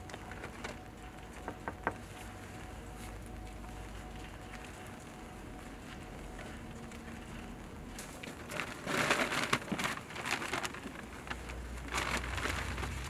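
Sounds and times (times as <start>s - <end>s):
paper bag crinkling: 5.8s - 13.0s.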